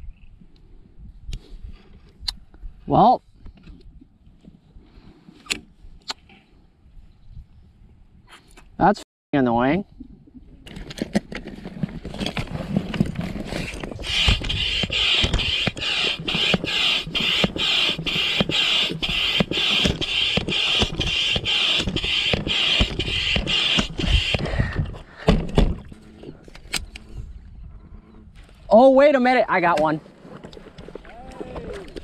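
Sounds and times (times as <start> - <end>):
fishing reel whirring: 13.9 - 24.4.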